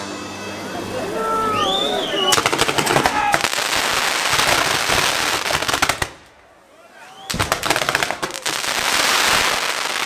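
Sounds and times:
fireworks whistling: 1.4 - 6.1, 7.0 - 10.0
firecrackers crackling and popping: 2.1 - 6.3, 7.3 - 10.0.

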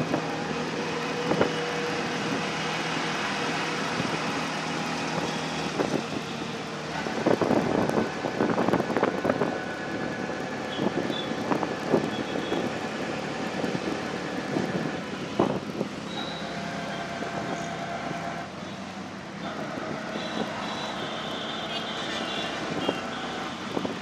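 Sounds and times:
road and wind noise: 0.0 - 24.0
traffic horn tone: 10.7 - 11.4, 12.1 - 12.7, 20.1 - 24.0.

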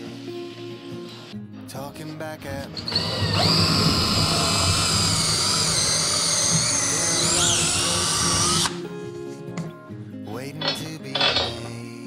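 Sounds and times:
cordless drill whining: 2.7 - 8.8.

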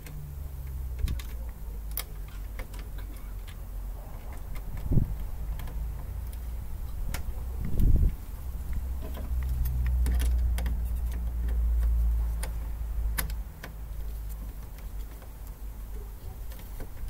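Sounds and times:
wires and metal parts clicking: 0.0 - 17.0
wind rumble on microphone: 3.8 - 11.2.

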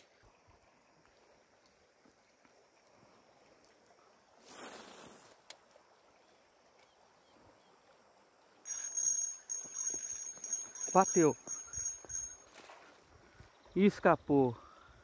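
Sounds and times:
high-pitched reel whir: 8.7 - 12.6.

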